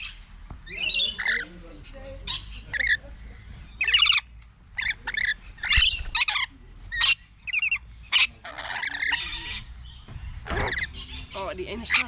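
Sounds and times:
parrots screeching: 0.0 - 1.5, 2.2 - 3.0, 3.8 - 9.8, 10.4 - 12.0.

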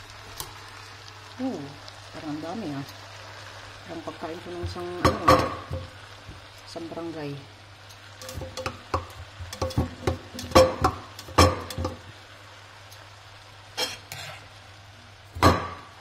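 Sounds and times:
light sizzle: 0.0 - 16.0
spatula knocking and scraping wok: 4.6 - 6.4, 8.2 - 12.1, 15.4 - 16.0.

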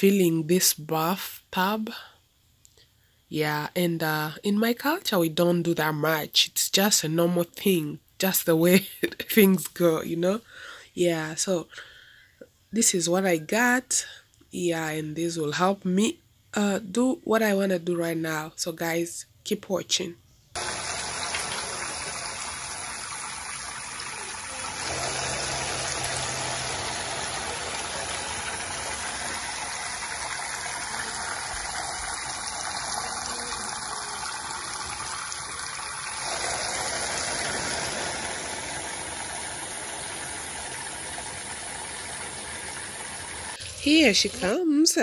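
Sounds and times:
water running into a bathtub: 20.6 - 44.6.

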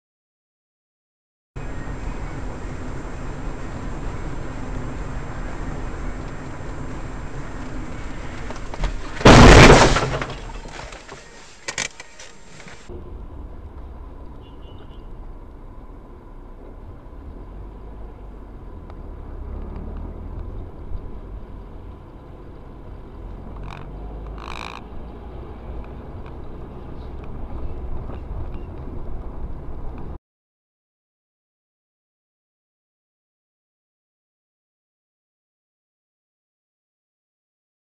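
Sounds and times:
road and engine rumble: 1.6 - 30.2
car crash impact: 8.3 - 11.4.

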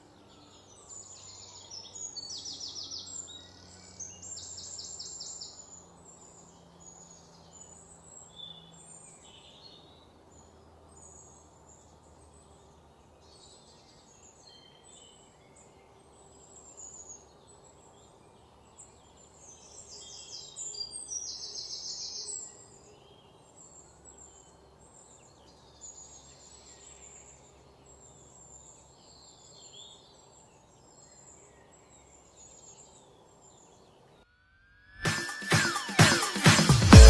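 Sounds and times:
loud electronic music: 35.0 - 37.0.

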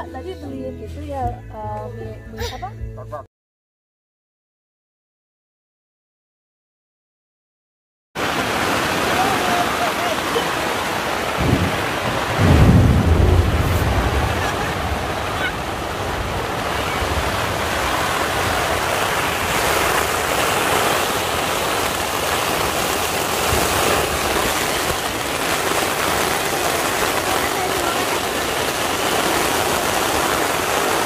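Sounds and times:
heavy rain on tarp: 8.2 - 31.0
low thunder rumble: 11.2 - 20.3.

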